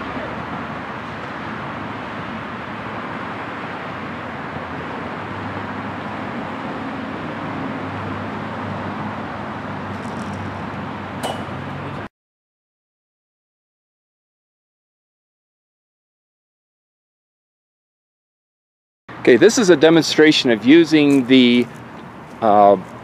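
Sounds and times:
outdoor background noise: 0:00.0 - 0:12.1, 0:19.1 - 0:23.0
sharp clack with ringing tone: 0:11.2 - 0:11.8.

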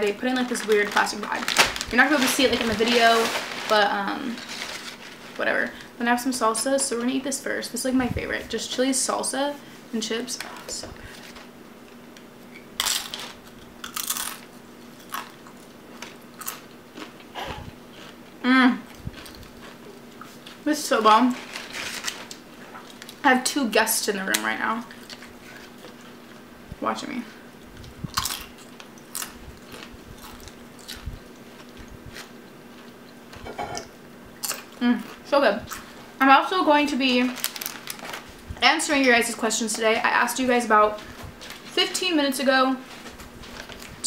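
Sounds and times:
chip crunching while chewed: 0:12.8 - 0:17.3, 0:18.9 - 0:20.6, 0:27.8 - 0:33.0, 0:34.4 - 0:35.9.

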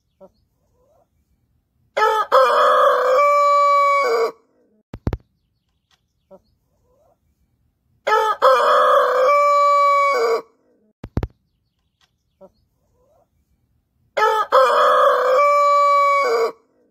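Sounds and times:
rooster crowing: 0:02.0 - 0:04.4, 0:08.1 - 0:10.5, 0:14.2 - 0:16.6.

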